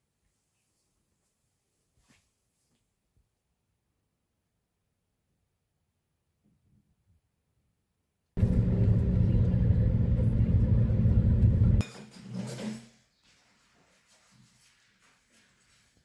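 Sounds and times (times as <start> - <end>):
car engine and road noise in cabin: 8.4 - 11.8.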